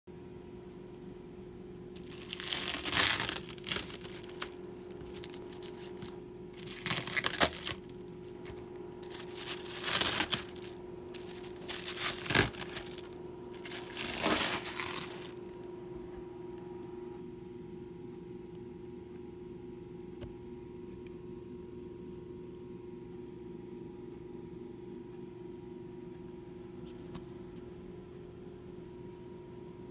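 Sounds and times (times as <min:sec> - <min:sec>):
steady low hum: 0:00.1 - 0:29.9
plastic sheeting crinkling: 0:02.0 - 0:15.6.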